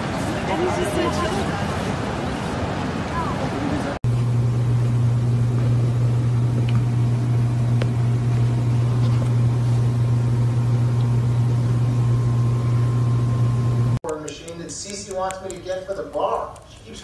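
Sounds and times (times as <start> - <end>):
steady low hum: 4.0 - 17.0.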